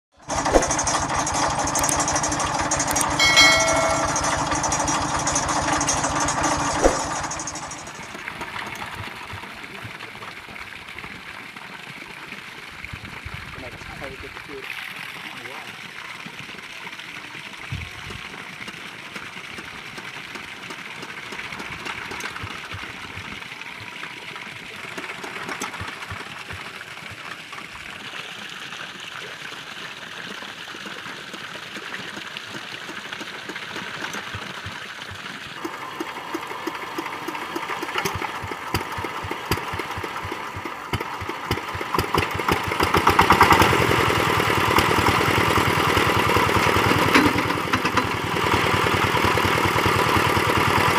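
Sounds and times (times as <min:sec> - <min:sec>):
diesel engine chugging: 0:00.2 - 0:10.6, 0:19.2 - 0:27.6, 0:33.9 - 0:50.9
diesel engine knocking: 0:00.2 - 0:10.6, 0:17.8 - 0:27.6, 0:32.1 - 0:50.9.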